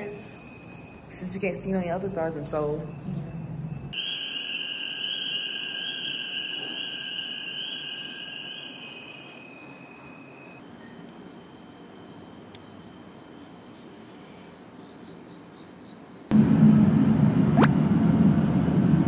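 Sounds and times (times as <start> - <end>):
high-pitched ambient tones: 0.0 - 11.7
faint rapid high chirping: 4.0 - 16.3.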